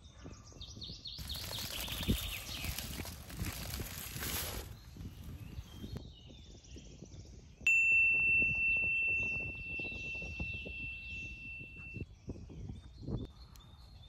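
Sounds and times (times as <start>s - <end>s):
faint birdsong: 0.0s - 7.7s, 9.2s - 14.0s
bell-like high ring: 7.7s - 12.0s.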